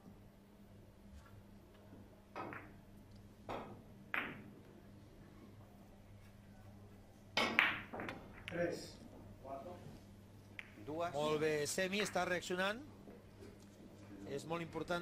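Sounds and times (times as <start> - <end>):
cue striking ball: 2.3 - 2.8, 3.5 - 4.6, 7.4 - 8.6
billiard balls clicking: 2.3 - 4.8, 7.4 - 8.6, 10.4 - 11.0.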